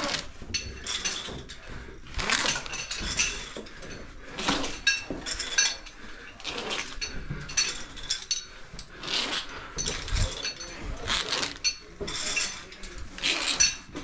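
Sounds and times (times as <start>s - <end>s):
metal climbing gear clinking: 0.0s - 14.0s
clothing scraping against rock: 8.9s - 14.0s.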